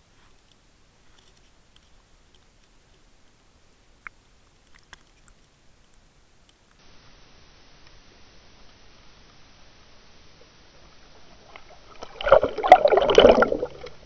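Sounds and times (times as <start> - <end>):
small clicks and pops: 0.3 - 3.4, 4.0 - 6.8.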